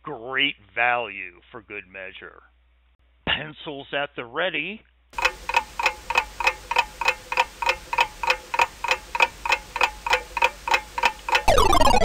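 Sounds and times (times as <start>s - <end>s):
timer ticking: 5.2s - 12.0s.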